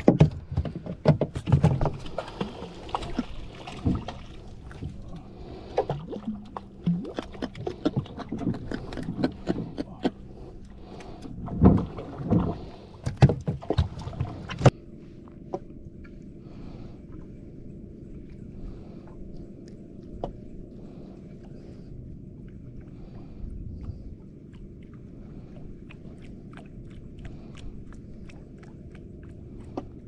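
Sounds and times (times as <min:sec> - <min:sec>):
knocks and clatter on a boat: 0:00.0 - 0:10.2, 0:11.2 - 0:14.7.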